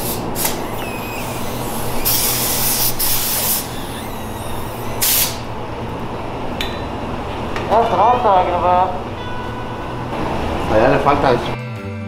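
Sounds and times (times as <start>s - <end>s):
paint spray gun hissing: 0.0s - 5.5s.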